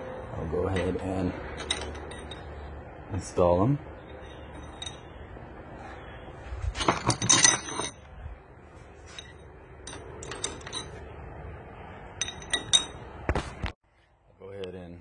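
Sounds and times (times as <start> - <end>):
metal pushrods clinking: 1.6 - 2.5, 4.1 - 5.2, 6.8 - 8.0, 9.1 - 11.0, 12.2 - 13.0.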